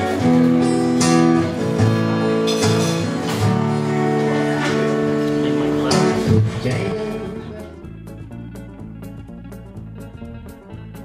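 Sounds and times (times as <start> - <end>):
strummed acoustic guitar music: 0.0 - 11.0.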